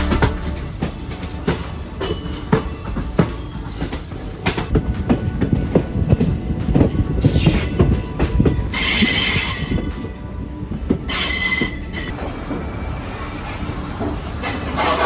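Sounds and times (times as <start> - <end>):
high wheel squeal: 11.0 - 13.8.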